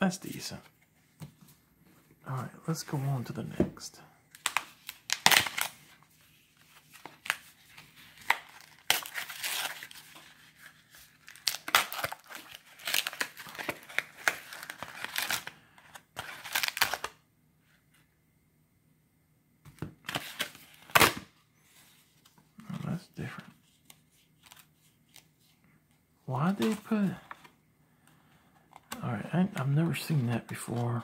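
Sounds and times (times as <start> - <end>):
plastic packaging crinkling and tearing: 4.4 - 5.8, 6.8 - 15.6, 16.2 - 17.1.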